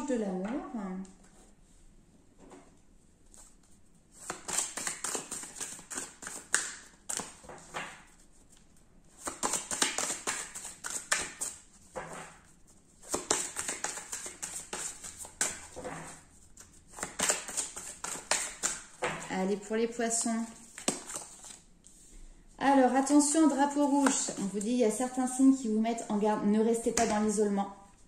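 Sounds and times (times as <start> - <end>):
cards shuffling: 3.3 - 19.3, 20.5 - 22.0, 23.7 - 24.6.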